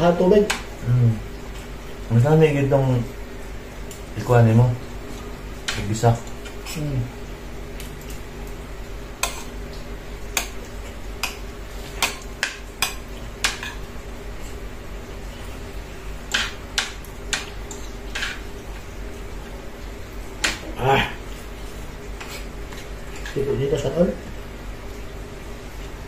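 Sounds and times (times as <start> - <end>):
cutlery clinking against plate: 9.2 - 9.5.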